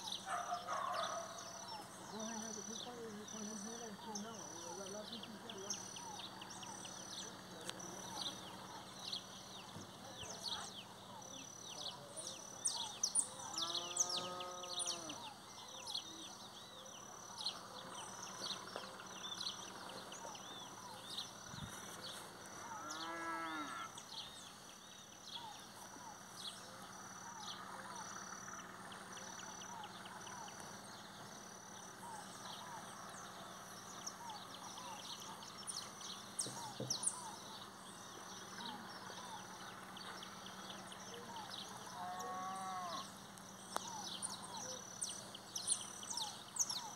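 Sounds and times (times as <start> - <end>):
birds chirping: 0.0 - 46.9
cattle mooing: 13.6 - 15.2, 22.6 - 24.0, 42.0 - 43.1.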